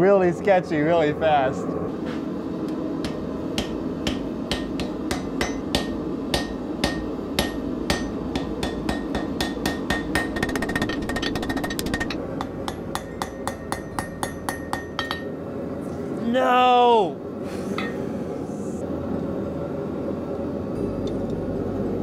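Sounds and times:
hammer striking steel on anvil: 3.0s - 15.4s.

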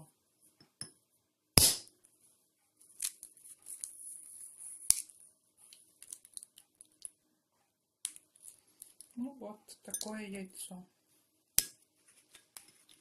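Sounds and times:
eggshell crackling and snapping: 6.0s - 7.2s.

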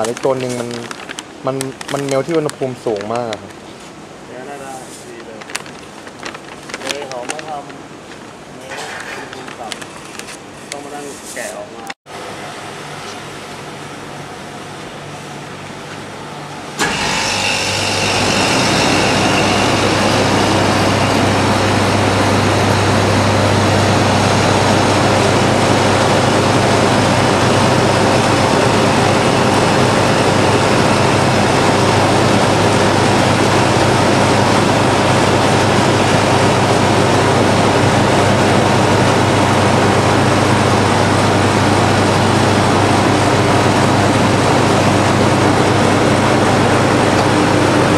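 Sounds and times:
loud machine noise with hum: 11.6s - 47.9s.

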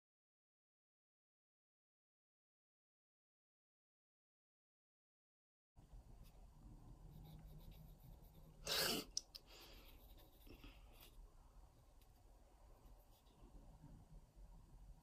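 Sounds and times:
pen scratching on paper: 7.0s - 11.2s.

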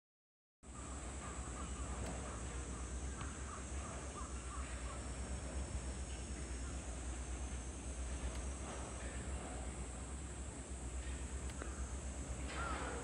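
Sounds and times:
crow-like caws: 11.6s - 13.0s.

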